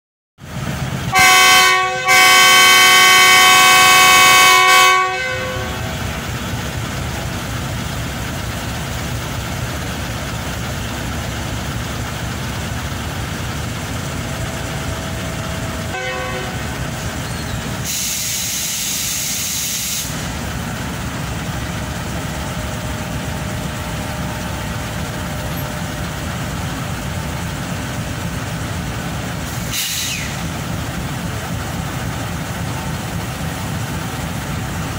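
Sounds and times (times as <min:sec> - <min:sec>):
locomotive engines rumbling: 0:00.4 - 0:34.9
locomotive horn blasts: 0:01.1 - 0:06.0, 0:15.9 - 0:16.9
air hiss: 0:17.8 - 0:20.4, 0:29.5 - 0:30.5.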